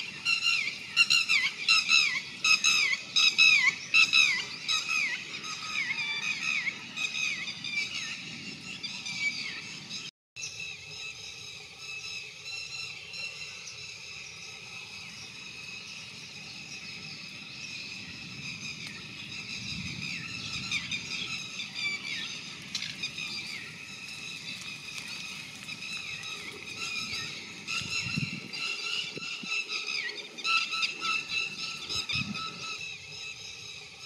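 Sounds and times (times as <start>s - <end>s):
lapwing calling: 0.0s - 10.0s, 17.0s - 33.9s.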